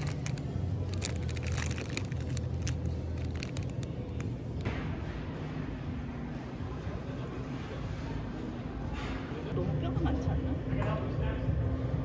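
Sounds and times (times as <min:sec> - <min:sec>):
plastic bag crinkling: 0:00.0 - 0:04.3.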